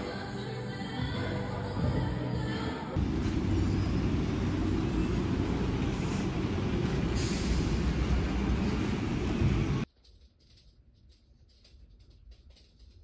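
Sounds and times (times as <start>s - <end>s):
traffic rumble: 1.3s - 9.9s.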